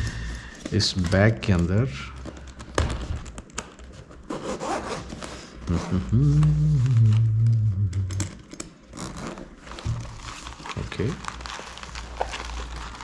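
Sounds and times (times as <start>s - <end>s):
bag zipper pulled open: 4.3s - 5.1s
low steady hum: 5.6s - 13.0s.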